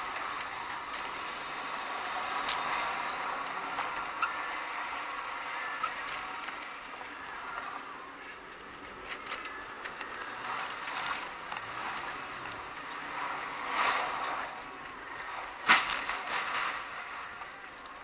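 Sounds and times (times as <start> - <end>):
car road and engine noise: 0.0 - 18.0.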